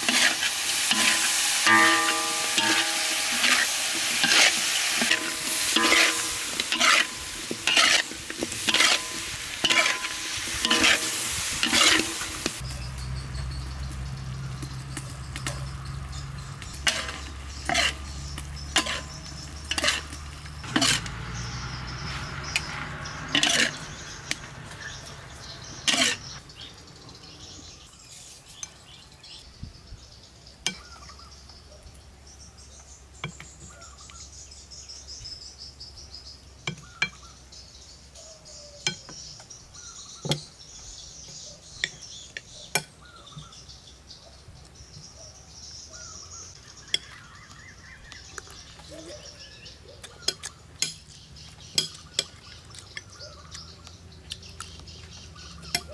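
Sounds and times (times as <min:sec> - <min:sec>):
metal utensil scraping in wok: 0:00.0 - 0:12.6, 0:15.4 - 0:27.4.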